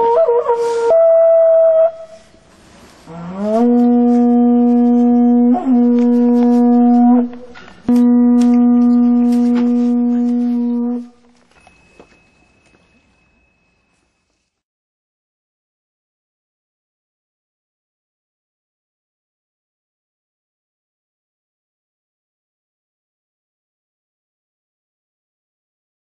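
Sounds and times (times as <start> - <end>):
horn-like wind instrument notes: 0.0 - 11.4.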